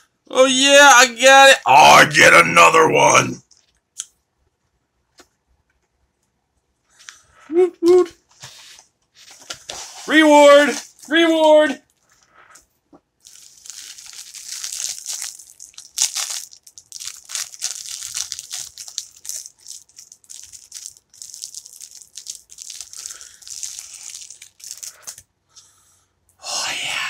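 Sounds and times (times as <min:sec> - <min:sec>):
plastic wrapper crinkling: 0:09.2 - 0:11.1, 0:13.2 - 0:25.3.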